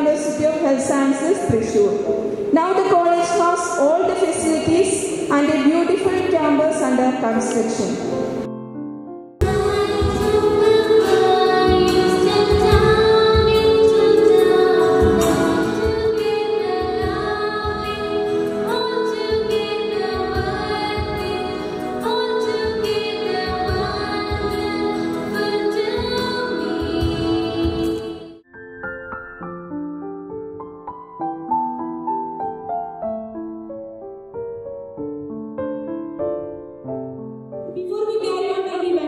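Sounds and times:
musical accompaniment: 5.1s - 37.9s
women singing a prayer song: 9.4s - 28.3s.

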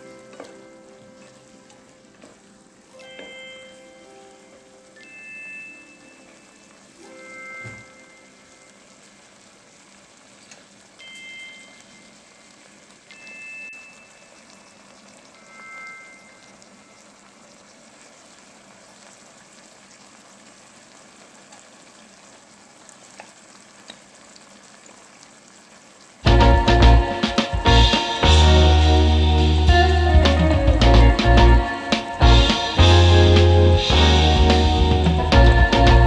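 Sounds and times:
vegetables sizzling in a pot: 0.0s - 36.0s
high chime-like tones: 2.9s - 8.8s, 11.0s - 12.5s, 13.1s - 17.0s.

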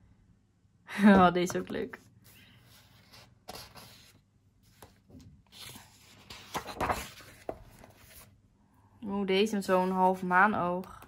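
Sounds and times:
paper pages turning: 2.2s - 8.3s.

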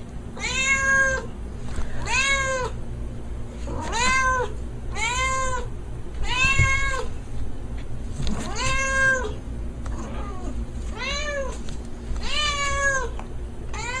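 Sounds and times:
cat meowing: 0.4s - 1.3s, 2.0s - 2.8s, 3.7s - 7.1s, 8.4s - 9.4s, 12.2s - 14.0s.

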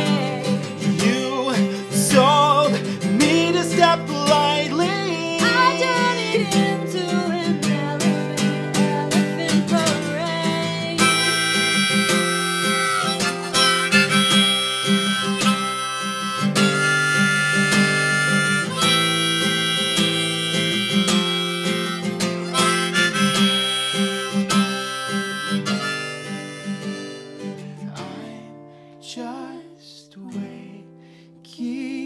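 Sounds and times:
strummed acoustic guitar: 0.0s - 31.3s
harmonica solo: 10.5s - 28.4s.

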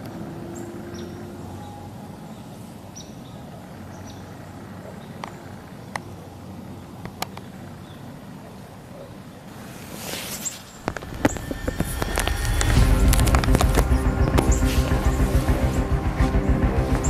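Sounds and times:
low rumble: 10.6s - 17.0s.

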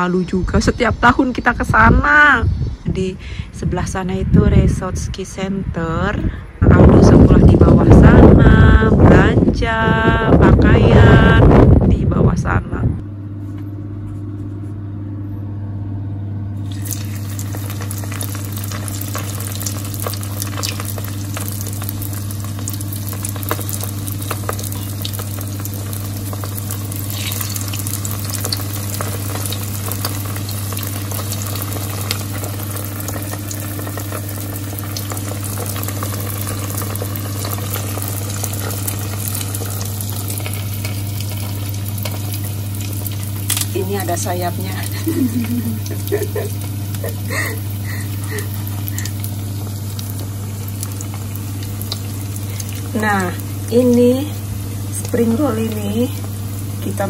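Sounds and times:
steady low hum: 0.0s - 57.0s
deep-frying oil sizzle: 16.6s - 57.0s.

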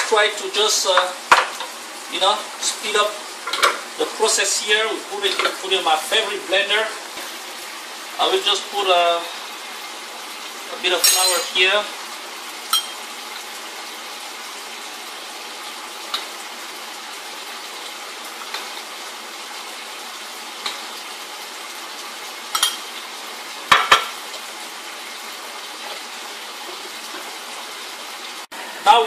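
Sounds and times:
spoon clinking against bowl: 12.7s - 13.0s.

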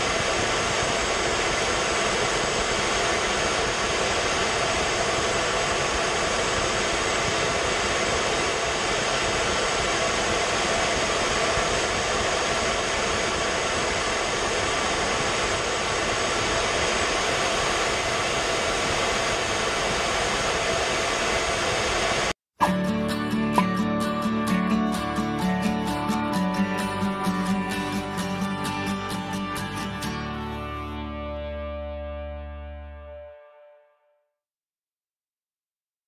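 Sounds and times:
jet engine and airflow rush: 0.0s - 22.5s.

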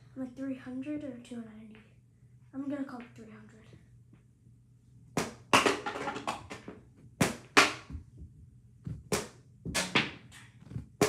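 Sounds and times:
plastic balls clacking: 5.5s - 6.7s.

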